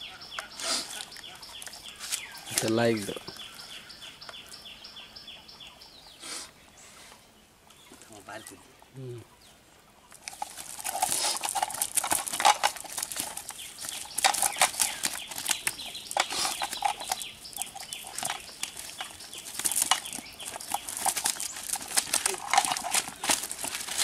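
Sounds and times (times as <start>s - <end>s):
fish flapping and slapping: 10.2s - 24.0s
net mesh rustling: 10.2s - 24.0s.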